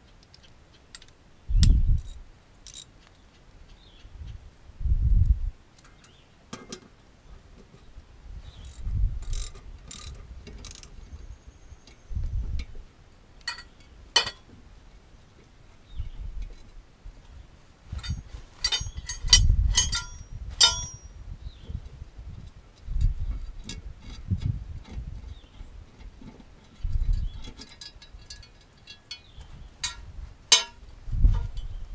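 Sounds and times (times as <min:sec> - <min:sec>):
metallic clicks of hand tools: 0:00.0 - 0:03.2, 0:08.6 - 0:10.9, 0:18.0 - 0:21.1, 0:26.6 - 0:30.8
dull low thumps: 0:01.5 - 0:02.1
ratchet strokes: 0:08.6 - 0:10.9.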